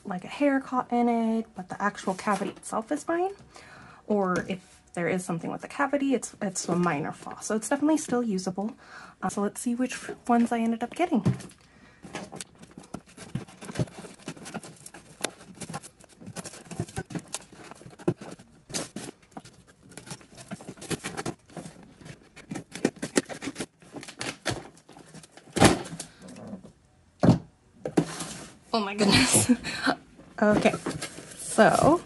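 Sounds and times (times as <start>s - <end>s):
cardboard flaps rustling: 11.1s - 26.2s.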